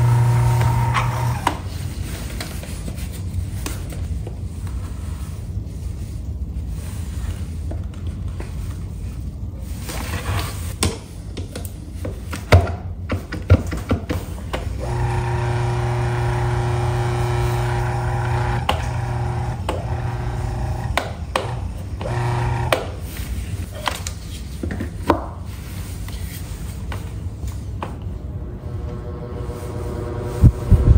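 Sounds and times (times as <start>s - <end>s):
fan motor humming: 0.0s - 1.7s, 14.6s - 23.0s, 28.2s - 30.9s.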